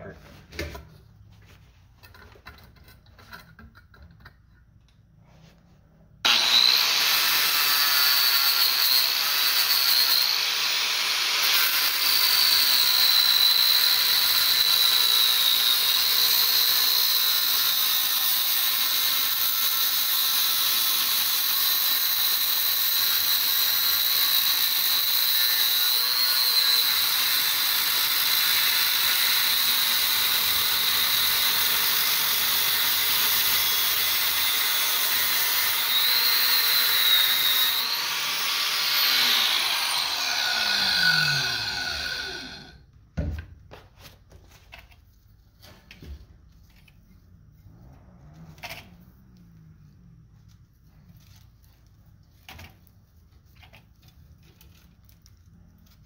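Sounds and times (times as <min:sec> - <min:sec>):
angle grinder cutting copper: 0:06.2 - 0:42.8.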